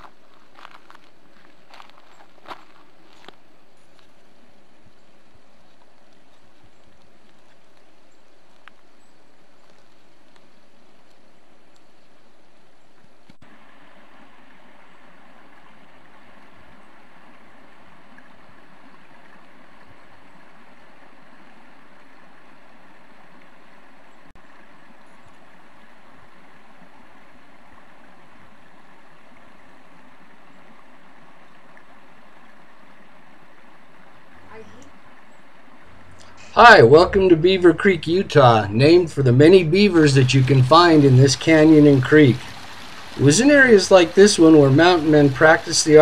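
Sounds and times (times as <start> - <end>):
creek water rushing: 0.0 - 46.0.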